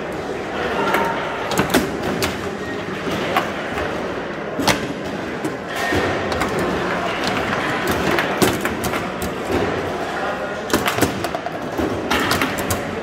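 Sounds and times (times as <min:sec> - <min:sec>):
murmur of large hall: 0:00.0 - 0:13.0
foosball players knocking ball: 0:00.7 - 0:13.0.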